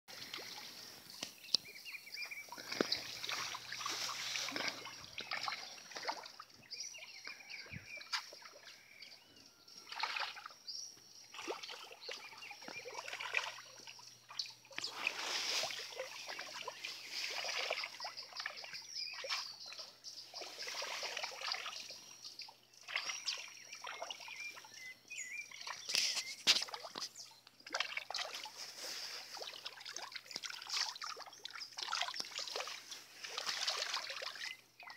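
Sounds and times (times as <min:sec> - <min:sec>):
fish splashing at water surface: 0:02.5 - 0:06.4, 0:19.3 - 0:21.9, 0:25.9 - 0:34.6.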